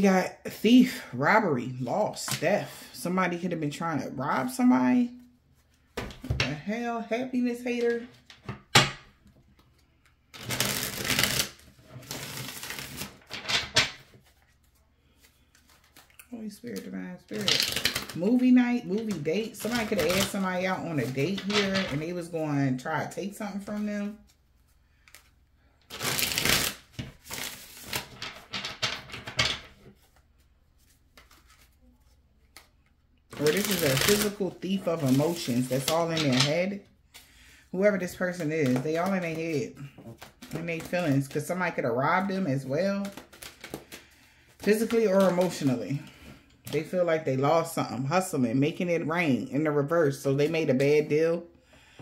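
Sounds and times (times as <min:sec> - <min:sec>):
cards being shuffled: 0:09.3 - 0:22.1, 0:23.6 - 0:25.3, 0:25.9 - 0:45.7.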